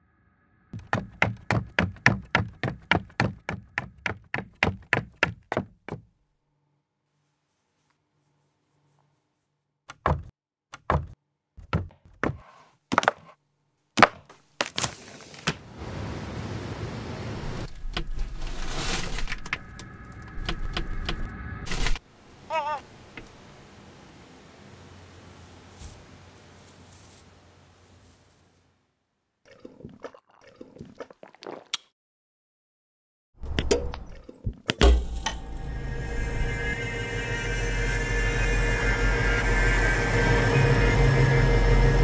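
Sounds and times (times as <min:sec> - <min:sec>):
quick footsteps: 0:00.8 - 0:06.1.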